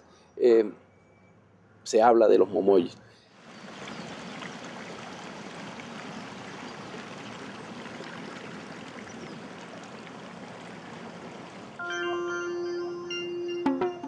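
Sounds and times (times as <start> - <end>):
stream running water: 2.6 - 11.8.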